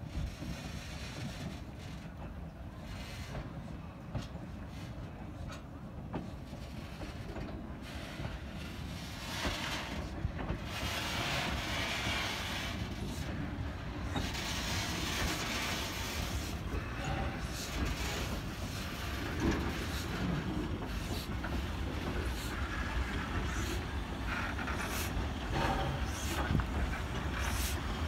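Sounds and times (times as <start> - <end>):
steel wheels clicking over rail joints: 0.0 - 28.0
train clanks: 0.0 - 28.0.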